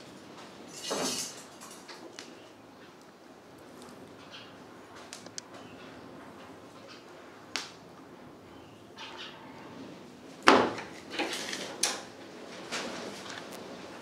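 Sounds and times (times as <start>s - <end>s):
steel vessels knocking and scraping: 0.7s - 2.0s.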